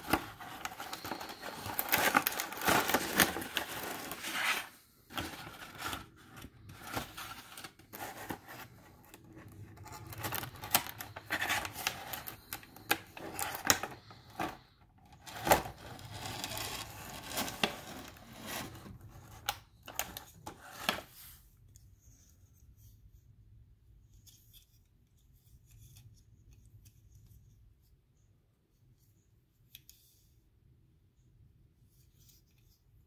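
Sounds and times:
plastic packaging crinkling: 0.0 - 14.6, 15.2 - 18.9.

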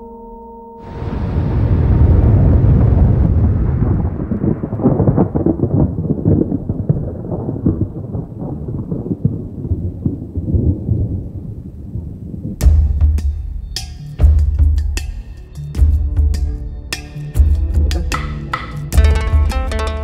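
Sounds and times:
bomb blast rumble: 0.8 - 13.2.

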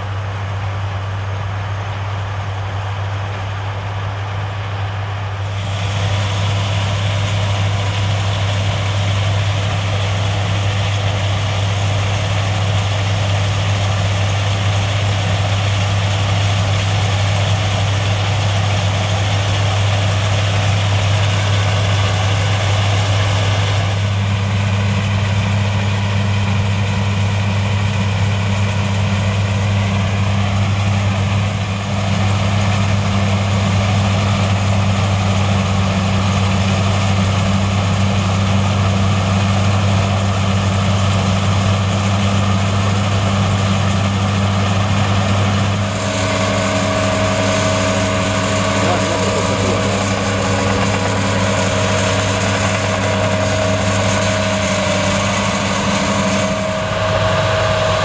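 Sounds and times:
combine harvester engine hum: 0.0 - 58.0
machinery noise: 2.6 - 58.0
higher steady hum: 44.6 - 58.0.

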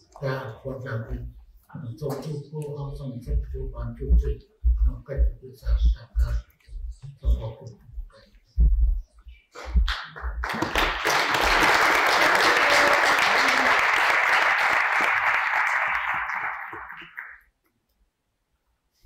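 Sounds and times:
audience applause: 9.9 - 17.5.

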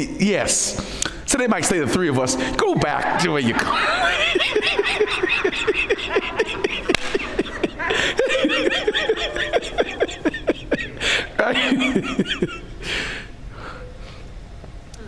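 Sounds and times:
man laughing: 2.6 - 12.8.

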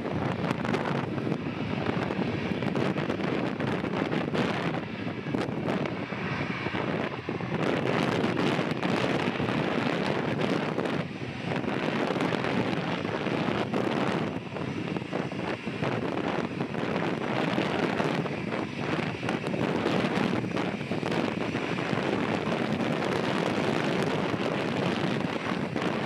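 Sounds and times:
jet engines at takeoff thrust: 0.0 - 26.0
wind buffeting microphone: 0.0 - 26.0.

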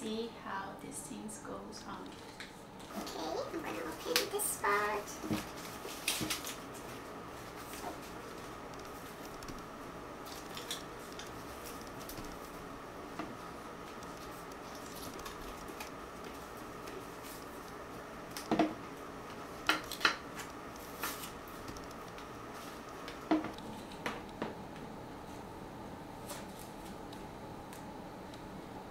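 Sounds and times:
paper and film rustling: 3.7 - 9.5, 14.0 - 17.8, 19.8 - 24.0
sharp clicks and taps: 8.7 - 9.7, 21.7 - 22.2.

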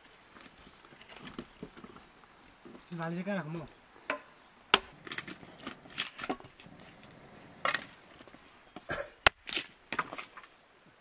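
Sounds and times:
dry wood cracking and snapping: 4.7 - 6.9, 7.6 - 10.6.

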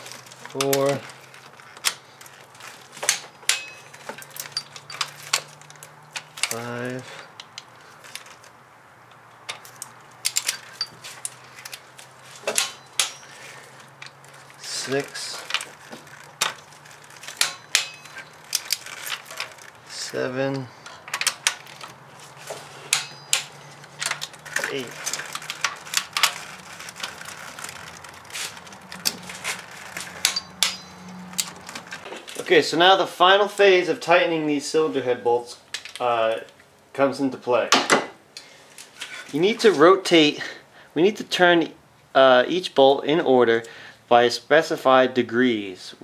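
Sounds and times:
metal clack: 3.0 - 5.5, 12.4 - 13.4, 17.2 - 19.6, 22.9 - 27.1, 29.0 - 32.1.

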